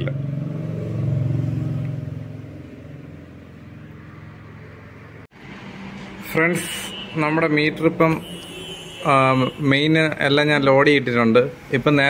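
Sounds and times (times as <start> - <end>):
passing vehicle engine hum: 0.0 - 8.2.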